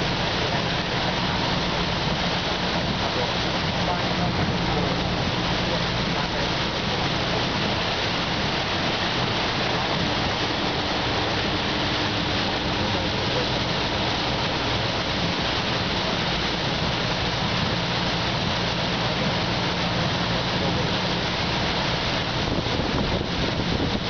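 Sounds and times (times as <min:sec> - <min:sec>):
bus engine hum: 0:00.0 - 0:22.2
floodwater rushing and splashing: 0:00.0 - 0:24.0.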